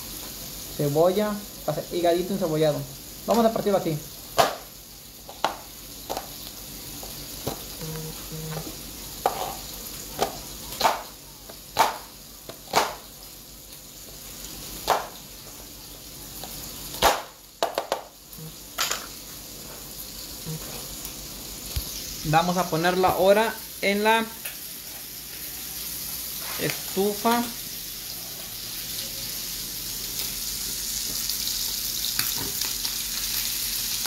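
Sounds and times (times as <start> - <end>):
liver sizzling in a pan: 0.0 - 34.0
knife chopping on cutting board: 11.8 - 13.0, 14.8 - 15.2.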